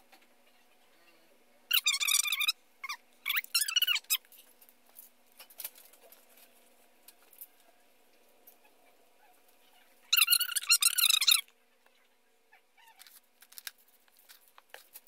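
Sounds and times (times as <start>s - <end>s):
small animal high-pitched calls: 0.5s - 4.2s, 8.5s - 11.5s, 12.5s - 13.2s
paper handling clicks: 13.0s - 15.0s.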